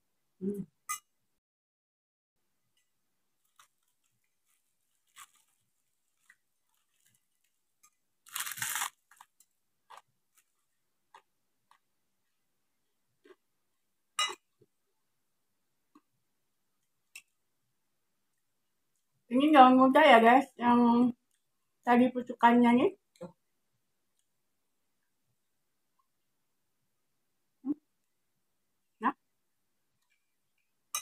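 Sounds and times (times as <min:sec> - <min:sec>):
faint chewing: 0:02.7 - 0:12.4
crisp chips crunching: 0:03.4 - 0:07.5, 0:08.2 - 0:11.8.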